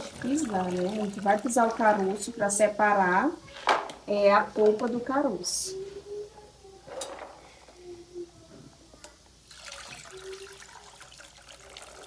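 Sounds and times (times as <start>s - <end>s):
water poured through strainer: 0.0s - 2.1s, 9.5s - 12.0s
water splashing in basin: 0.0s - 2.2s.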